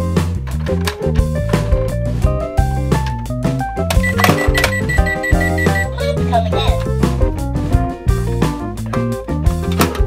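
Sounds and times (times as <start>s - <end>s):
loud background music: 0.0s - 6.1s
high electronic beeps: 4.0s - 5.9s.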